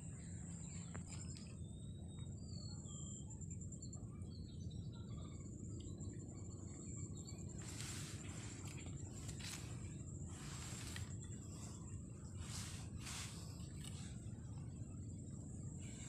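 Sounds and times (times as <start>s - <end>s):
bird chirps: 0.0s - 15.0s
low wind rumble: 4.2s - 16.0s
high-pitched insect drone: 6.8s - 16.0s.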